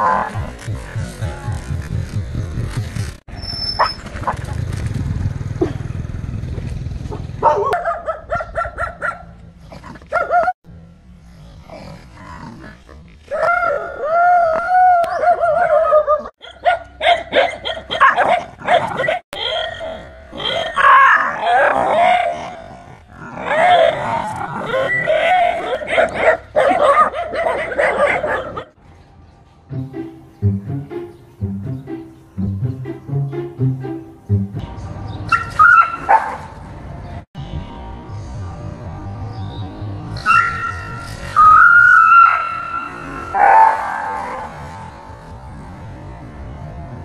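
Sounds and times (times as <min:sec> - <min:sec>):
dog barking: 0:07.1 - 0:09.3, 0:10.1 - 0:10.6, 0:15.2 - 0:22.3, 0:24.7 - 0:28.8, 0:35.3 - 0:36.5, 0:43.3 - 0:44.4.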